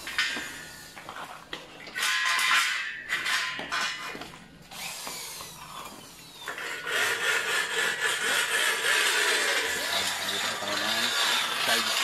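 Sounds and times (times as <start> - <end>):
electric drill grinding into metal: 4.7 - 12.0.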